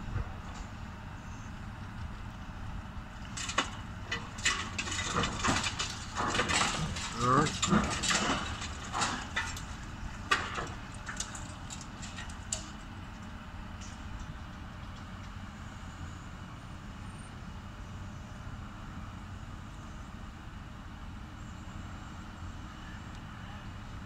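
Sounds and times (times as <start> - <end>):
excavator jaws crushing concrete: 3.3 - 12.8.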